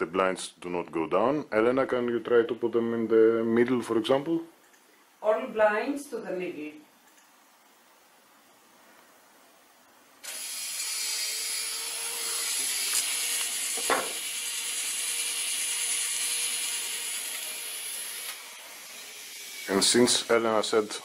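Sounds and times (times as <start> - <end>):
motorised blind whirring and rattling: 10.2 - 20.9.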